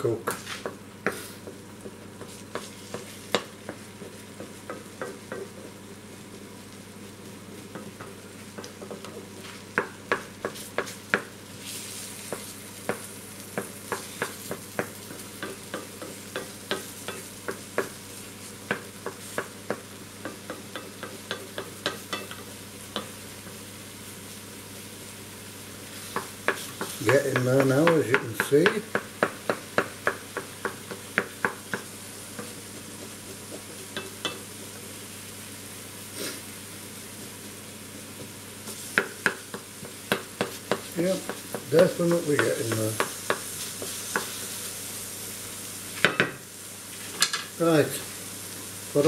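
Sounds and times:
omelette sizzling in a frying pan: 0.0s - 49.0s
wooden spoon scraping a pan: 30.4s - 34.9s, 39.9s - 44.8s.

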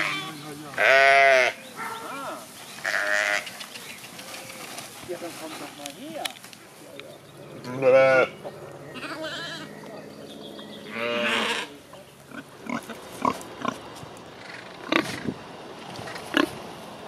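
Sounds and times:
sheep bleating: 0.0s - 3.6s, 7.6s - 9.9s, 10.8s - 11.8s
pigs grunting: 7.4s - 15.4s, 16.0s - 16.6s.

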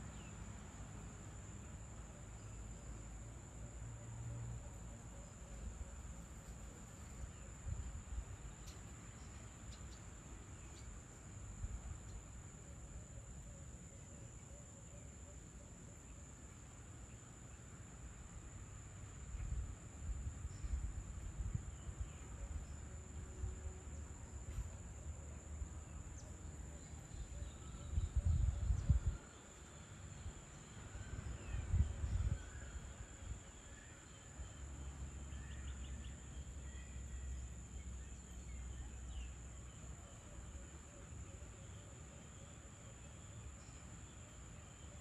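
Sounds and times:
insects droning: 0.0s - 45.0s.

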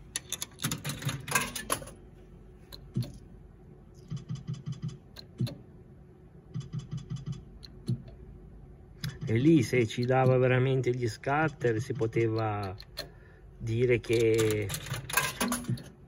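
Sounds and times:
slot machine clicking: 0.2s - 2.0s, 14.0s - 15.9s.

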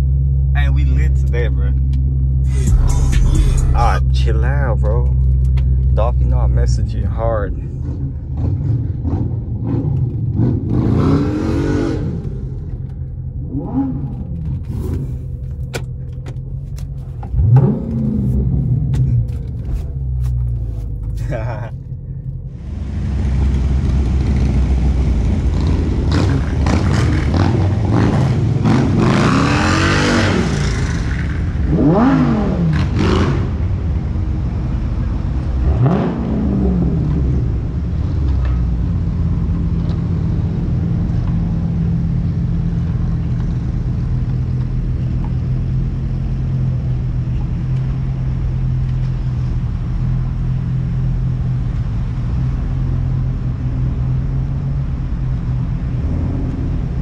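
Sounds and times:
car engine idling: 0.0s - 9.0s, 12.2s - 25.7s
car engines revving: 0.1s - 57.0s.

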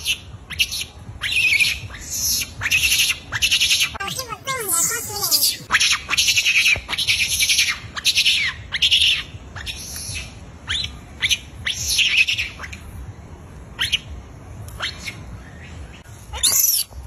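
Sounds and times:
monkeys screaming: 0.6s - 12.8s, 16.3s - 16.9s.

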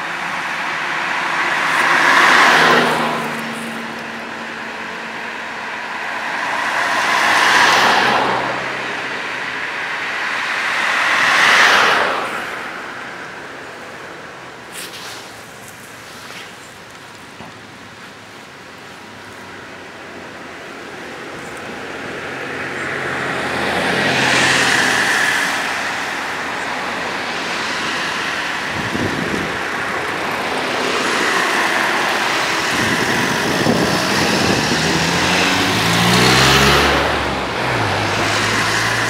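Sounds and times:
car engine accelerating: 0.0s - 12.8s, 21.3s - 39.0s
cars passing by: 0.0s - 39.0s
steady engine hum: 0.0s - 39.0s.

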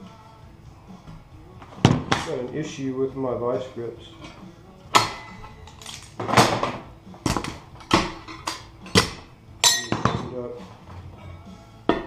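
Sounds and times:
pliers clanking against metal: 5.0s - 11.0s.

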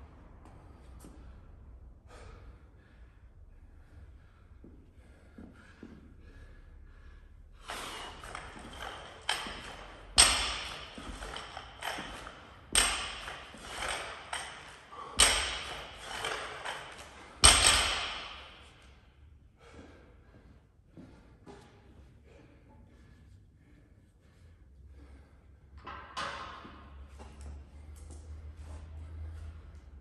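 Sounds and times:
barbell thudding on floor: 7.7s - 18.6s
metallic ring of barbell plates: 7.7s - 18.9s.

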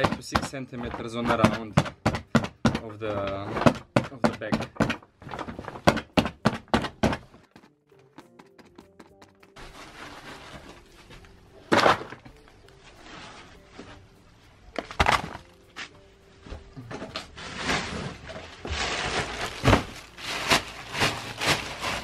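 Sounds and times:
wood chips rustling and clattering: 9.6s - 14.1s, 14.7s - 22.0s.

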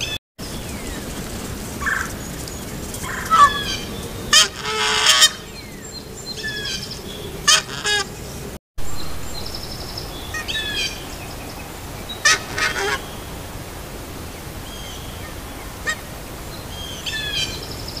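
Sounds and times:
geese honking: 1.8s - 5.8s, 6.4s - 8.4s, 12.2s - 13.1s.

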